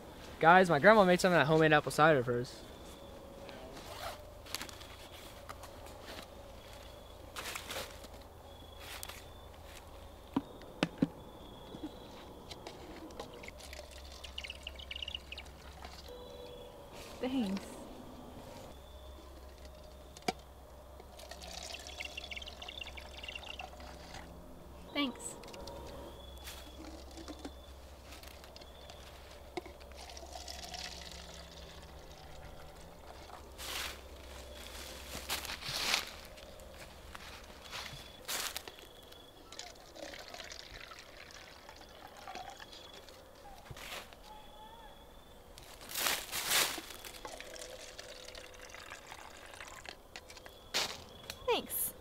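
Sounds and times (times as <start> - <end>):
liquid pouring into plastic cup: 21.2 - 24.2, 29.6 - 33.3, 39.5 - 43.1, 47.1 - 50.0.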